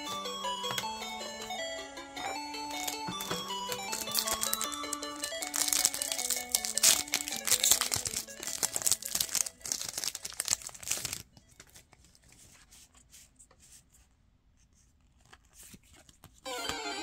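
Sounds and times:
foil wrapper tearing and crinkling: 3.9s - 11.8s.

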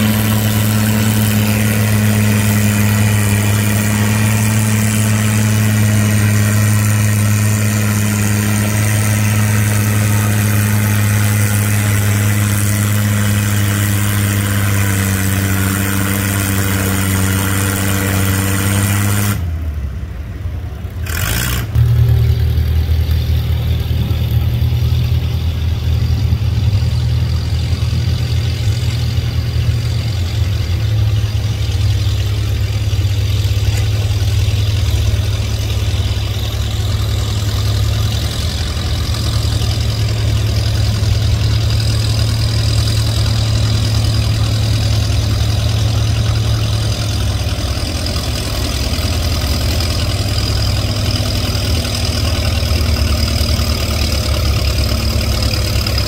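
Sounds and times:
tractor engine droning: 0.0s - 56.0s.

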